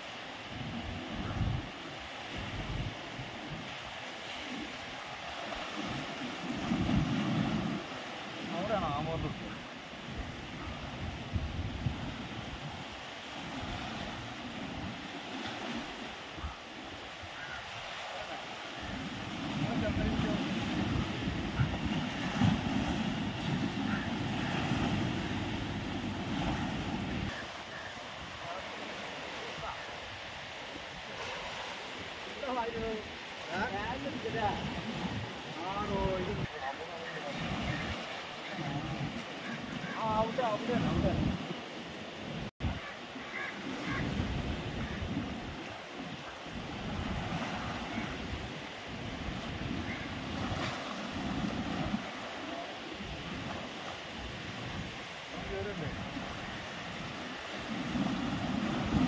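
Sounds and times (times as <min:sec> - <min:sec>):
wind buffeting microphone: 0:19.1 - 0:27.4, 0:43.7 - 0:45.7.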